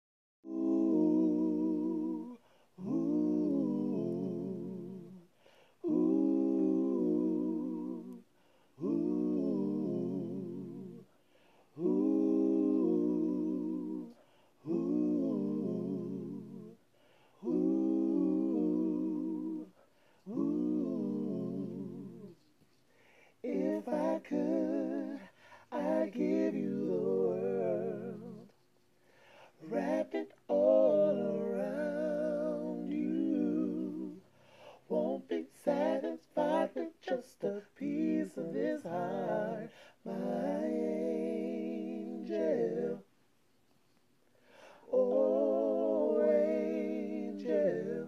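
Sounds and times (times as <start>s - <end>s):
man singing a cappella harmony: 0.4s - 43.2s, 44.4s - 48.0s
short breaths: 22.8s - 23.4s, 28.9s - 29.6s, 34.3s - 34.9s, 44.2s - 44.9s.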